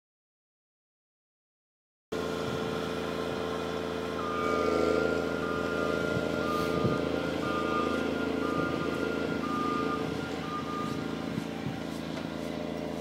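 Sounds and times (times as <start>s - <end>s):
diesel engine running: 2.1s - 13.0s
warning beeper: 4.1s - 11.9s.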